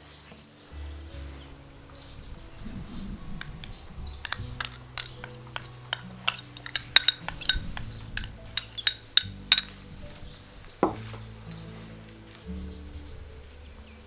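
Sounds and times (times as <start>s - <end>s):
spoon scraping glass bowl: 2.9s - 9.8s
spoon clinking against glass: 3.4s - 9.8s.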